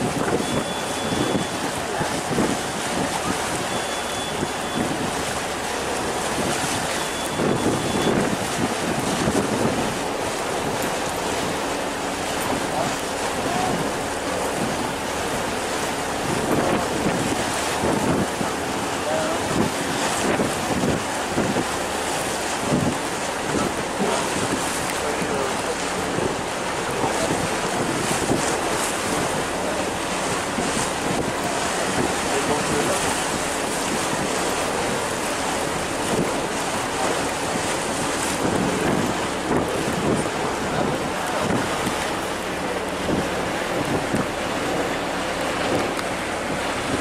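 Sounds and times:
water rushing past ferry: 0.0s - 47.0s
wind on microphone: 0.0s - 47.0s.

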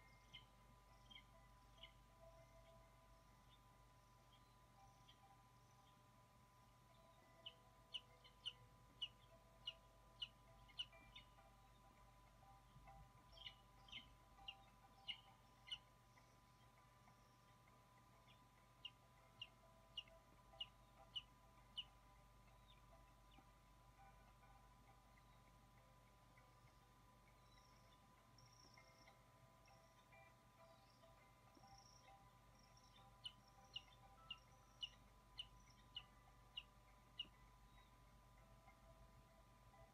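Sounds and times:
faint electrical hum: 0.0s - 39.9s
eagle chick cheeping: 12.4s - 23.5s, 27.4s - 38.0s.

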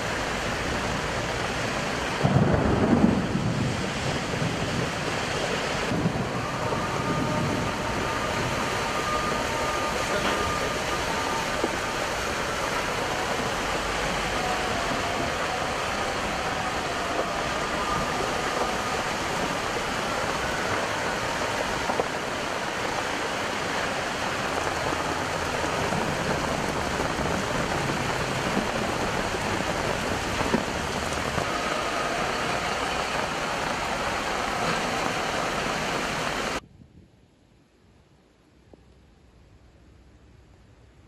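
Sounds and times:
heavy rain pouring: 0.0s - 36.6s
traffic driving through water: 0.0s - 36.6s.

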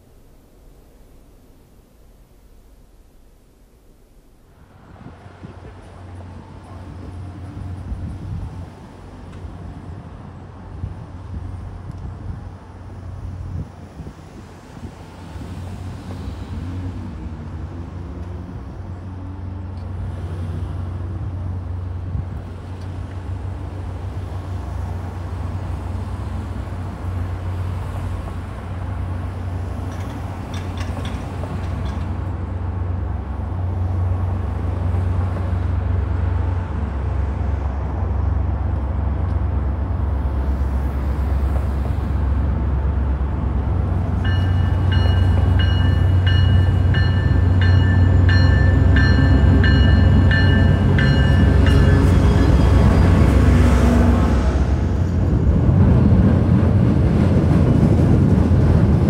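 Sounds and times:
diesel train rumble: 0.0s - 59.0s.

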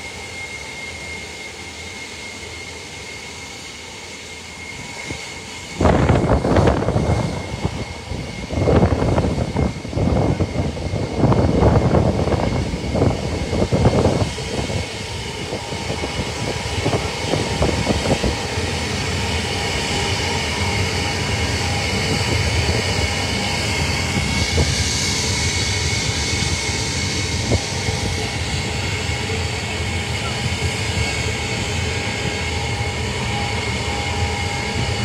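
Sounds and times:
jet engines running: 0.0s - 35.0s.

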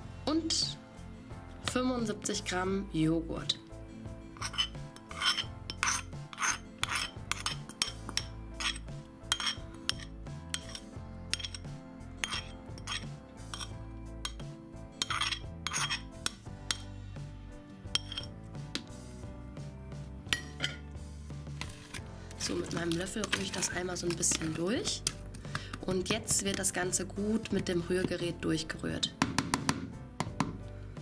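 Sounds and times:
background music: 0.0s - 31.0s
metal spoon scraping ceramic bowl: 4.3s - 16.9s, 17.9s - 18.4s, 20.3s - 20.9s, 21.6s - 26.8s.

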